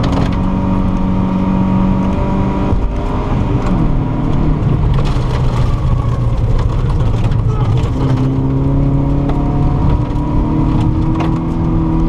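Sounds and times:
car engine revving: 0:00.0 - 0:12.0
tyres on gravel: 0:04.7 - 0:08.6.

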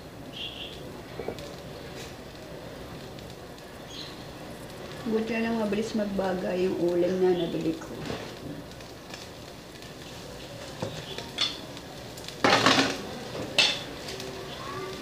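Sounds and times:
clattering on stone grill: 0:07.9 - 0:14.6.

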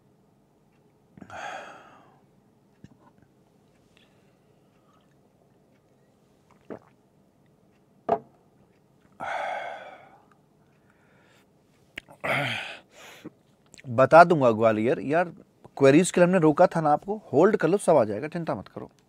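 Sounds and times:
breathy exhale: 0:01.2 - 0:02.2, 0:09.2 - 0:10.3, 0:10.9 - 0:11.5
man drinking water: 0:04.0 - 0:07.1
glass knocking on surface: 0:08.1 - 0:08.3.

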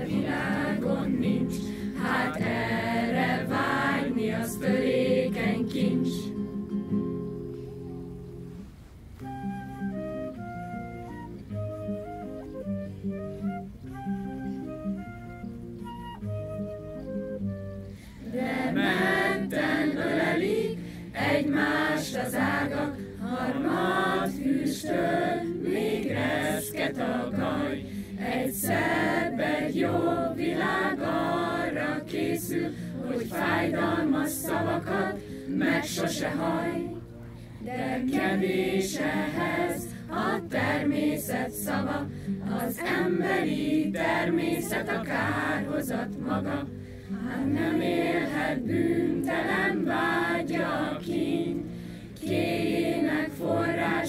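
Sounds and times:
group of voices singing: 0:00.0 - 0:06.4, 0:18.2 - 0:54.0
low steady accompaniment: 0:00.0 - 0:54.0.

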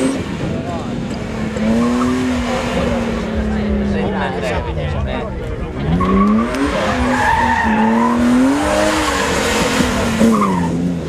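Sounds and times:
car engine revving hard: 0:00.0 - 0:04.7, 0:05.6 - 0:11.0
tyres squealing on tarmac: 0:05.8 - 0:11.0.

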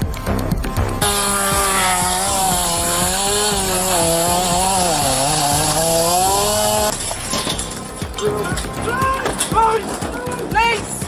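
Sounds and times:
power saw cutting into door: 0:01.0 - 0:07.0.

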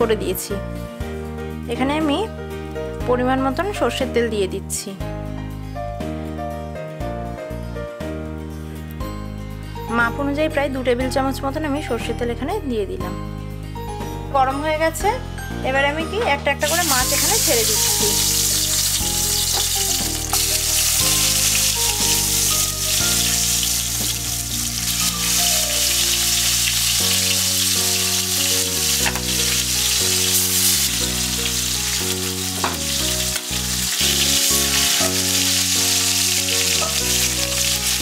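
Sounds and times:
background music: 0:00.0 - 0:38.0
fish sizzling in hot oil: 0:16.7 - 0:38.0.

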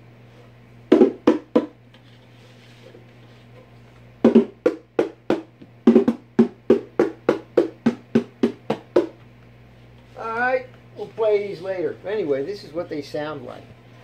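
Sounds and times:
bongo drums: 0:00.9 - 0:01.8, 0:04.2 - 0:09.2.

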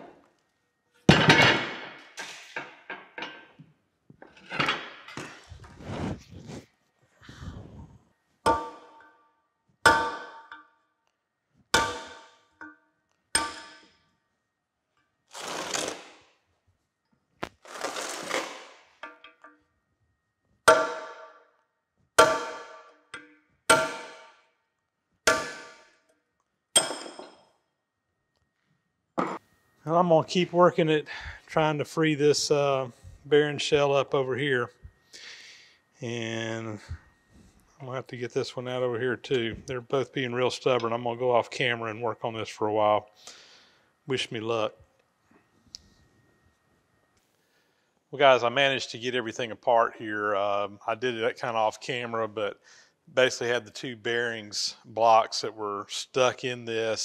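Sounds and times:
hammer striking steel punch: 0:08.5 - 0:09.1, 0:09.9 - 0:10.6, 0:11.8 - 0:12.8, 0:13.4 - 0:14.0, 0:20.7 - 0:21.4, 0:22.2 - 0:24.5, 0:25.3 - 0:26.0, 0:26.8 - 0:27.4.

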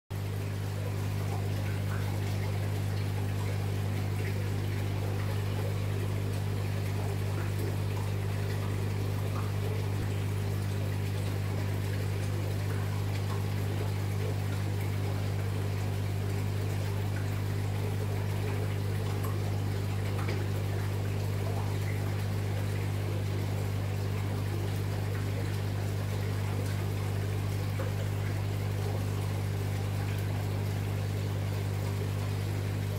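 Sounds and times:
pump humming: 0:00.1 - 0:32.9
water trickling: 0:00.2 - 0:32.9.

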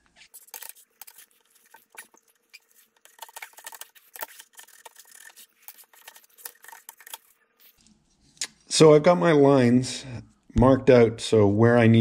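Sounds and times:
scriber scratching steel: 0:00.2 - 0:07.8.

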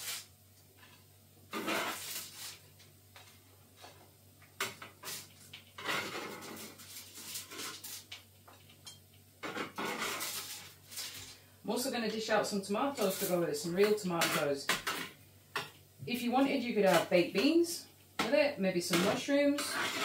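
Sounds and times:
metal spatula scraping baking tray: 0:01.5 - 0:02.6, 0:05.0 - 0:08.1, 0:09.4 - 0:11.3, 0:12.9 - 0:15.1, 0:16.8 - 0:17.6, 0:18.9 - 0:20.0.

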